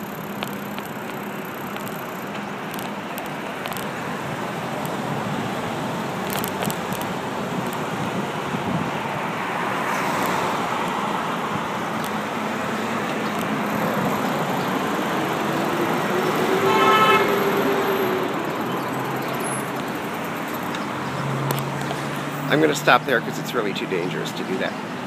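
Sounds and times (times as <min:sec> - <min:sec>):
heavy street traffic: 0:00.0 - 0:25.0
vehicle horn honking: 0:16.3 - 0:18.1.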